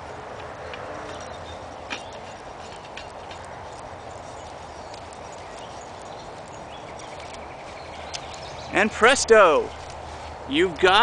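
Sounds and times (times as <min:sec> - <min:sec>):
small metal clicks and scrapes: 0:00.4 - 0:08.5.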